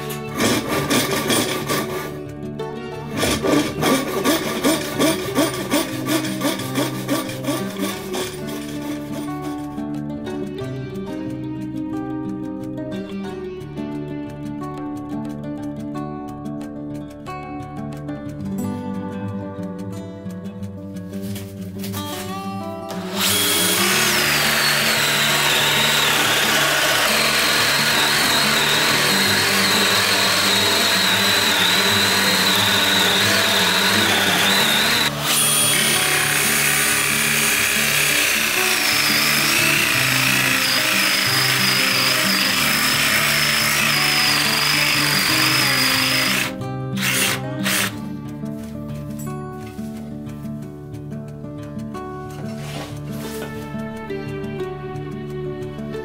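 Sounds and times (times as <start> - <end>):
cordless drill boring into wood: 0.0 - 2.2, 3.1 - 9.1, 22.9 - 48.0
background music: 0.0 - 56.0.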